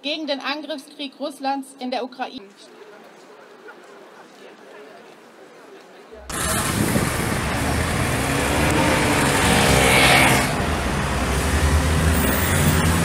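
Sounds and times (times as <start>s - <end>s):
low rumble of traffic: 6.2s - 13.0s
car passing close: 6.3s - 13.0s.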